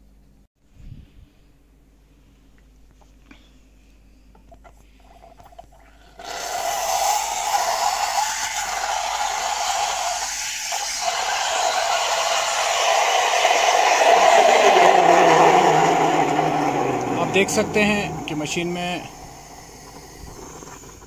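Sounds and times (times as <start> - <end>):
steam wand hissing: 6.2 - 21.0.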